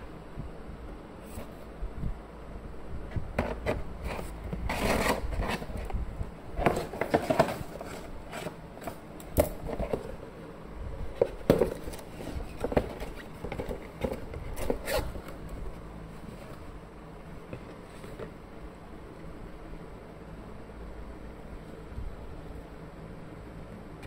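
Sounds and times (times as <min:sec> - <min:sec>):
cardboard box scraping and knocking: 0:03.3 - 0:05.9, 0:06.6 - 0:09.0, 0:11.2 - 0:15.4.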